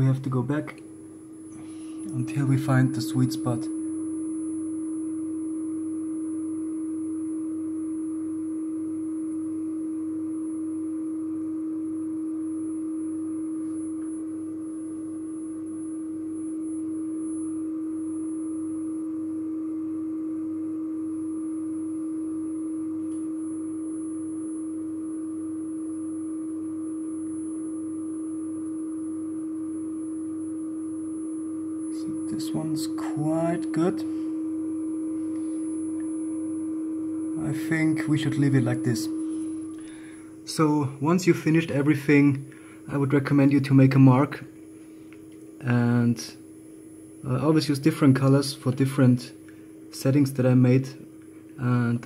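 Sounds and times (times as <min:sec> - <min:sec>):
steady sine test tone: 0:00.0 - 0:52.0
faint high test tone: 0:31.9 - 0:44.4.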